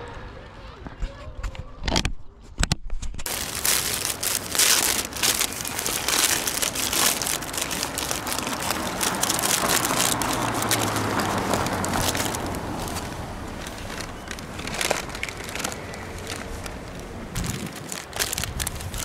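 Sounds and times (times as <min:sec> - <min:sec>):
paper wrapper crinkling: 0:03.2 - 0:19.0.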